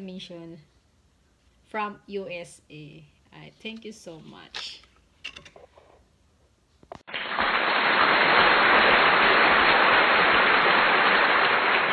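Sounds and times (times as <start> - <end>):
loud steady hiss: 6.9 - 11.9.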